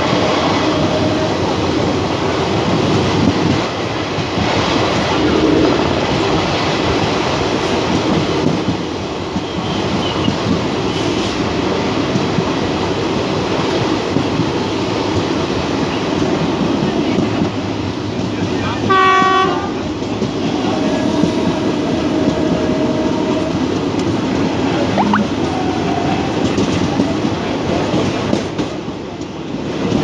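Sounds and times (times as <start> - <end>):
train wheels rumbling on track: 0.0 - 30.0
locomotive horn blast: 18.9 - 19.7.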